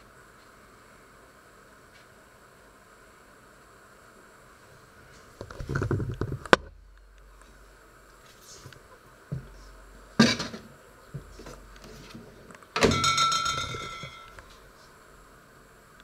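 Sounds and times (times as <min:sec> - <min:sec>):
plate knocks: 0:12.8 - 0:14.3
short metallic ringing: 0:12.8 - 0:14.4.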